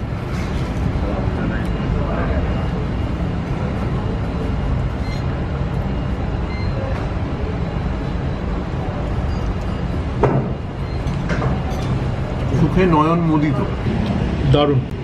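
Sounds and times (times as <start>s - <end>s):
low traffic rumble: 0.0s - 15.0s.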